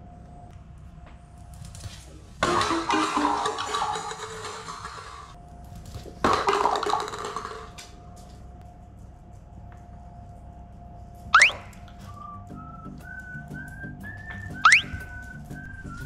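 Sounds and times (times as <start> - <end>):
paper cups clattering on wooden floor: 2.1 - 5.4, 6.0 - 8.0.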